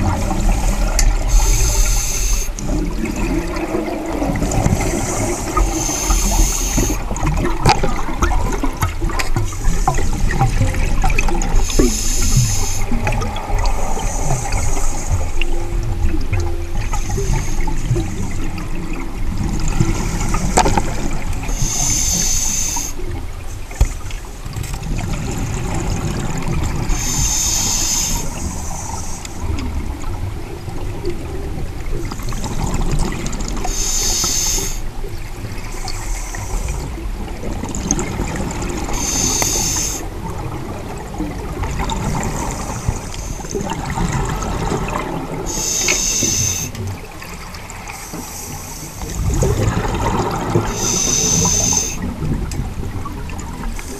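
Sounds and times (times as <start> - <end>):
exhaled bubbles rumbling: 0.0 - 22.0, 22.7 - 33.8, 34.7 - 53.9
regulator breathing hiss: 0.5 - 2.6, 4.8 - 7.0, 11.6 - 13.0, 13.8 - 15.4, 21.5 - 23.0, 26.9 - 29.5, 33.7 - 34.9, 35.7 - 36.9, 38.9 - 40.1, 42.5 - 43.6, 45.5 - 46.8, 47.9 - 49.1, 50.7 - 52.1.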